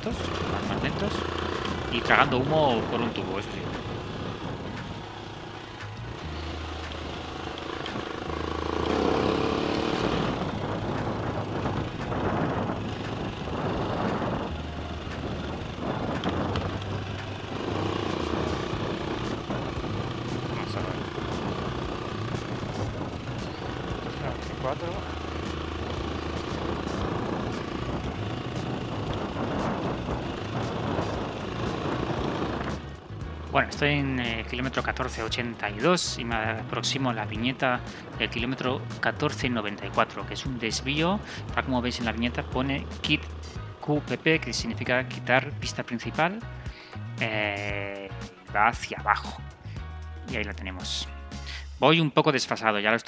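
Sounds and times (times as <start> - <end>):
wind noise: 0.0 - 6.9, 7.9 - 42.2
wheels on gravel: 0.0 - 33.0
motorcycle engine running: 0.0 - 51.8.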